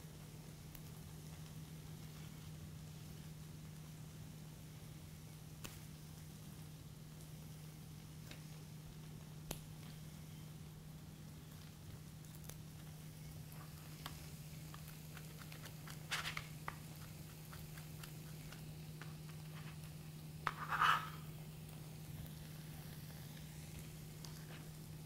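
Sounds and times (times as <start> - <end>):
steady low hum: 0.0 - 25.0
knife scraping cutting board: 20.4 - 21.3.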